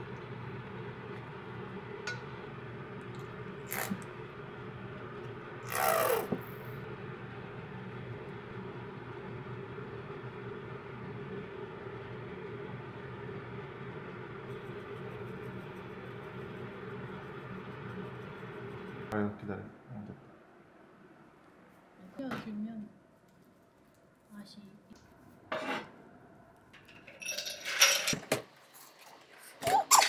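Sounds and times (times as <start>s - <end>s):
steady low hum: 0.0s - 26.8s
squeeze bottle squirting sauce: 3.7s - 4.0s.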